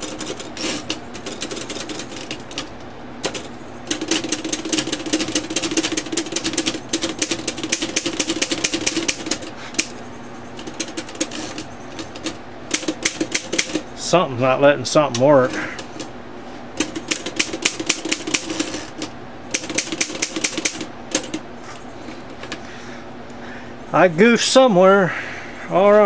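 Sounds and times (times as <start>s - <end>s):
typewriter platen clicking: 0.0s - 10.0s, 10.6s - 13.8s, 16.8s - 21.4s.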